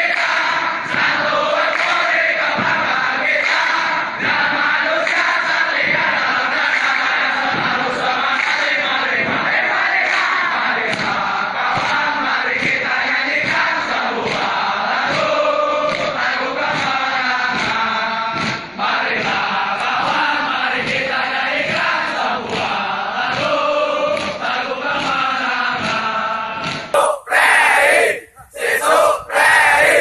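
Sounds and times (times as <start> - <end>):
men chanting in unison: 0.0 - 30.0
group shouting: 27.0 - 30.0
regular beat: 27.0 - 30.0.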